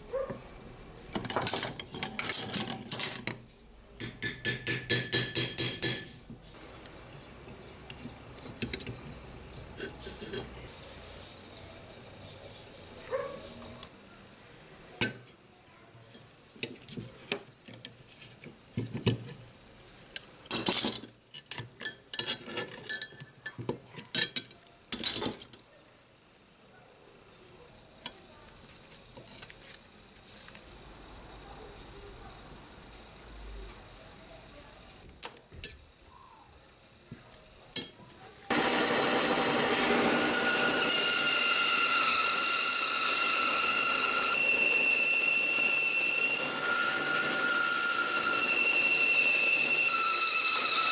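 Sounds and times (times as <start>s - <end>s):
bandsaw whining: 38.5s - 50.9s.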